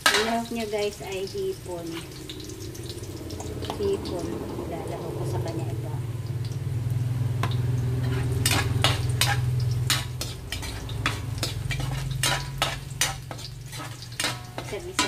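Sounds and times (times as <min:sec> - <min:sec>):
metal spatula scraping wok: 0:00.0 - 0:04.2, 0:07.4 - 0:15.0
shrimp sizzling in a wok: 0:00.0 - 0:15.0
steady low hum: 0:00.4 - 0:15.0.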